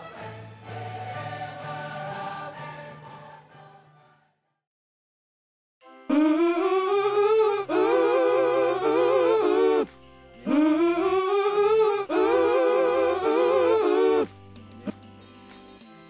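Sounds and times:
wordless voice singing: 0:06.1 - 0:15.0.

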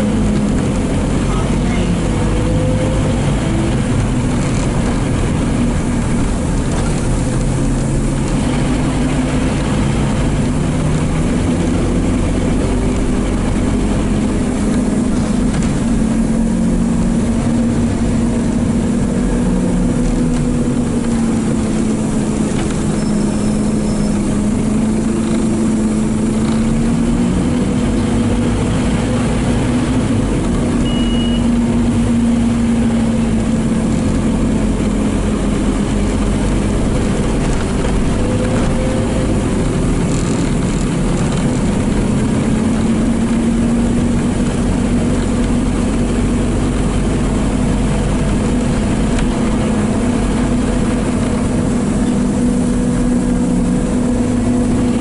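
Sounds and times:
bus diesel engine: 0:00.0 - 0:55.0.

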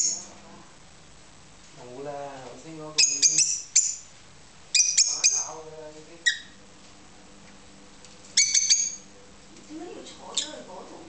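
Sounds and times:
lovebirds shrill chirps: 0:00.0 - 0:00.3, 0:02.9 - 0:04.1, 0:04.7 - 0:05.6, 0:06.2 - 0:06.6, 0:08.3 - 0:09.1.

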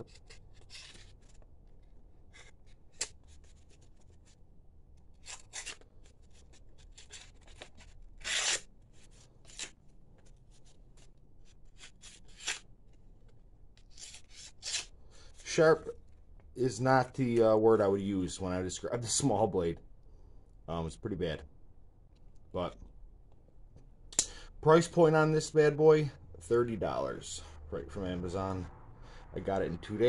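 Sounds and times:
knife cutting paper: 0:05.1 - 0:08.7.

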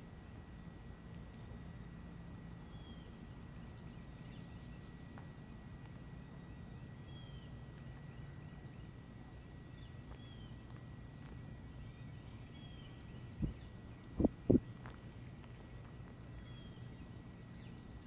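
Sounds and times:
low steady hum: 0:00.0 - 0:18.0
bird chirping: 0:02.7 - 0:05.6, 0:06.3 - 0:10.7, 0:11.6 - 0:14.6, 0:15.6 - 0:18.0.

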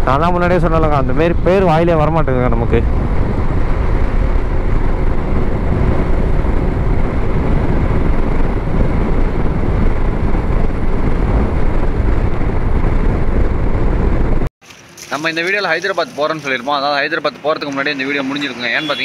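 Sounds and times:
wind rush on microphone: 0:00.0 - 0:14.5
scooter engine and road noise: 0:00.0 - 0:15.4, 0:17.2 - 0:19.0.

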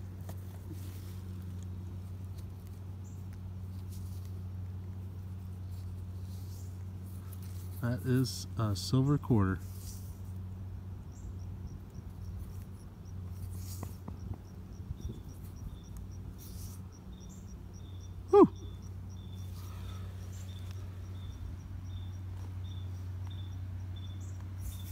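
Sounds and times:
low steady hum: 0:00.0 - 0:24.9
crickets chirping: 0:09.7 - 0:24.9
short loud falling call: 0:18.3 - 0:18.6.

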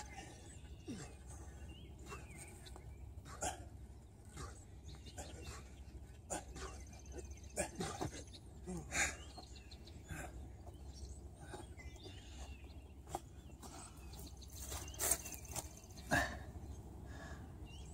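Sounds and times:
birds chirping: 0:00.0 - 0:17.9.

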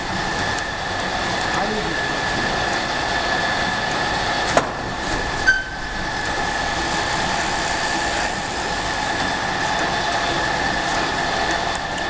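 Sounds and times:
conveyor belt whirring: 0:00.0 - 0:12.0
steady high whine: 0:00.0 - 0:12.0
brief squeak: 0:05.4 - 0:05.8.

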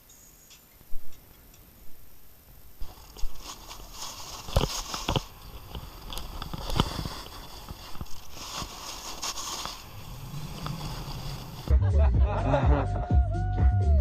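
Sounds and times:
snowboard scraping over snow: 0:02.8 - 0:11.7.

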